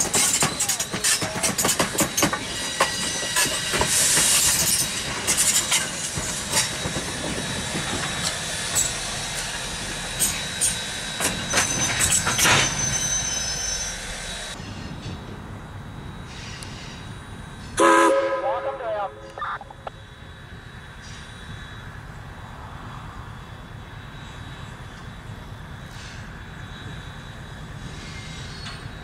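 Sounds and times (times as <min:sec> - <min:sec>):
wheels clicking over rail joints: 0:00.0 - 0:12.9
steam hissing: 0:00.0 - 0:14.7
high wheel squeal: 0:00.0 - 0:14.9, 0:27.8 - 0:29.0.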